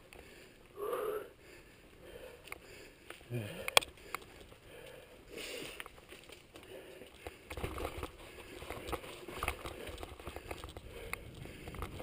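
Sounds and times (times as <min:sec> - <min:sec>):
bike tyres rattling over stones: 0:03.9 - 0:12.0
wind rumble on microphone: 0:10.1 - 0:12.0.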